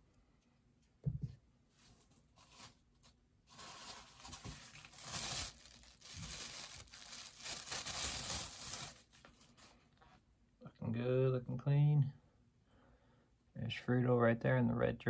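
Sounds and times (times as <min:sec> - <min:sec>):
plastic wrapping tearing and rustling: 0:02.4 - 0:09.8.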